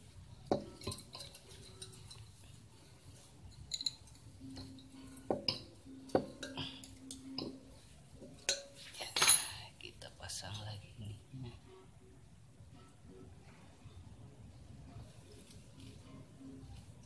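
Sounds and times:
light metal clinks and taps: 0.4 - 2.6, 3.2 - 9.7.

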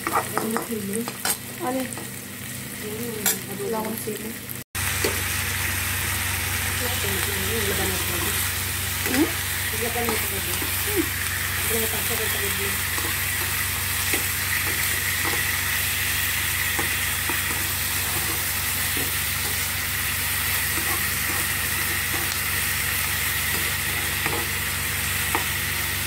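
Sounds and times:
food sizzling in frying pan: 0.0 - 26.0
spatula scraping pan: 9.0 - 22.4.

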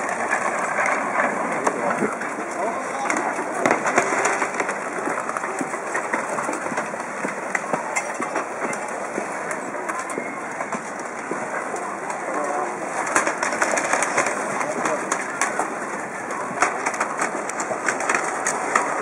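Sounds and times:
timber debris cracking and clattering: 0.0 - 6.8
floodwater rushing rumble: 0.0 - 19.0.

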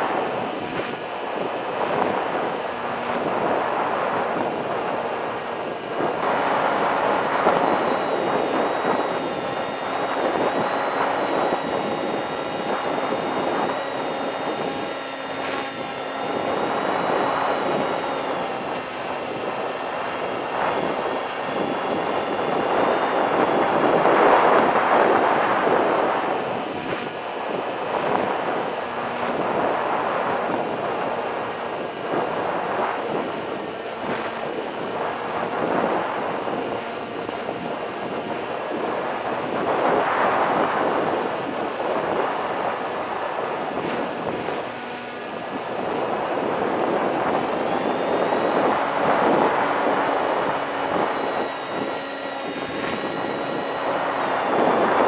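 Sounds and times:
electric motor and propeller whine: 0.0 - 55.0
wind rushing on microphone: 0.0 - 55.0.

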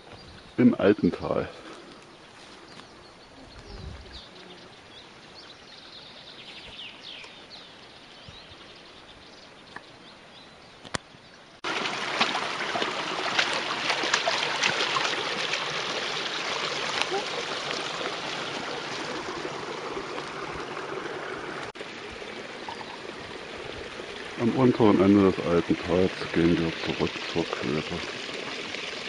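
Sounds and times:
birds chirping: 0.0 - 11.6, 15.2 - 29.0
brook rushing and splashing: 11.6 - 29.0.

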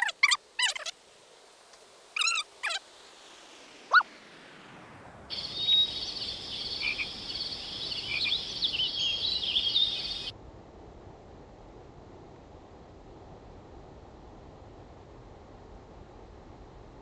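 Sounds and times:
high chorus of chirps and trills: 0.0 - 1.0, 2.2 - 2.8, 5.3 - 10.3
rising animal call: 0.0 - 1.0, 2.2 - 2.8, 3.9 - 4.1
wavering animal calls: 0.0 - 1.0, 2.2 - 2.8
low rushing noise: 1.0 - 17.0.

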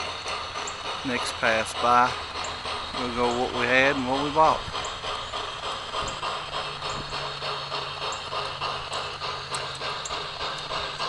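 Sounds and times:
model train clattering: 0.0 - 11.0.

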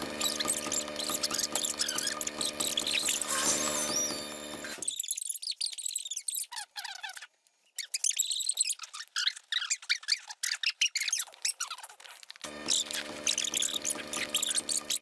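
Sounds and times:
sped-up squeaky voices: 0.0 - 15.0.

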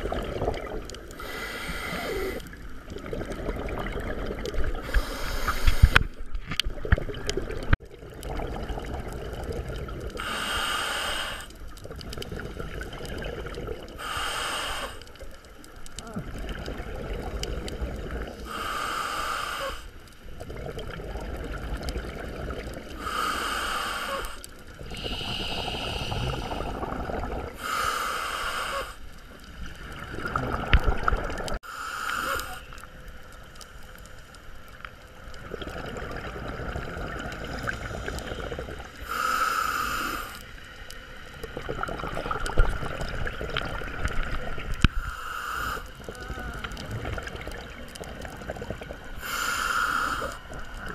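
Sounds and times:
gurgling rush of exhaled bubbles: 0.0 - 10.4, 11.8 - 14.1, 15.9 - 18.7, 20.3 - 23.2, 24.2 - 27.8, 29.4 - 31.6, 35.2 - 39.1, 41.3 - 44.9, 45.7 - 50.9
regulator hissing inhales: 1.2 - 2.5, 4.8 - 6.1, 10.2 - 11.6, 14.0 - 15.2, 18.4 - 20.0, 23.0 - 26.8, 27.6 - 29.1, 31.6 - 32.7, 37.7 - 40.4, 44.9 - 46.0, 49.2 - 50.5.

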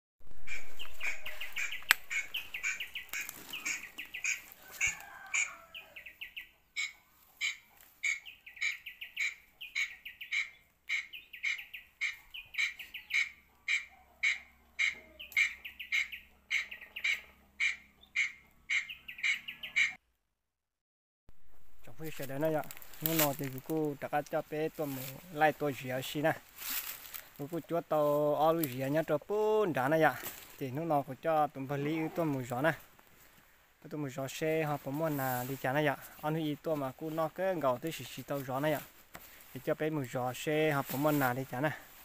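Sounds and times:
small animal chirping calls: 0.4 - 20.0.

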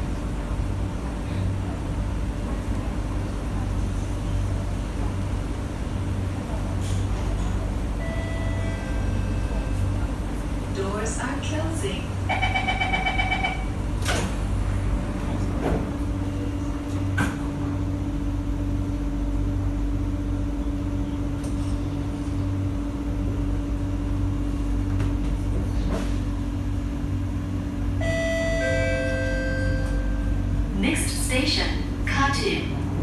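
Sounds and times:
train motor hum: 0.0 - 33.0
station announcement: 1.7 - 17.0, 27.4 - 33.0
train doors clunking shut: 12.4 - 16.1
door-closing chime: 28.1 - 30.2.

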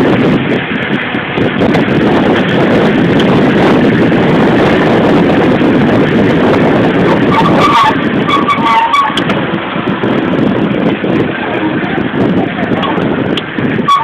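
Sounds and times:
car rushing noise in traffic: 0.0 - 14.0.

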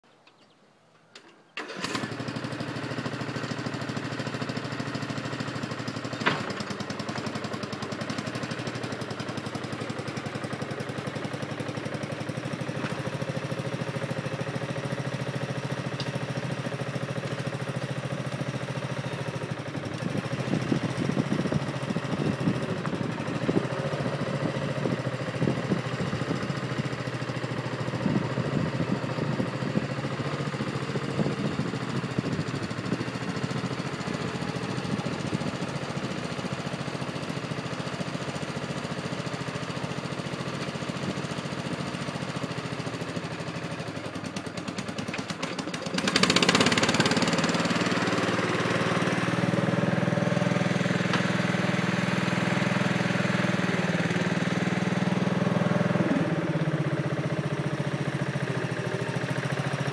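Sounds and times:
lawn tractor engine under load: 0.1 - 59.9.

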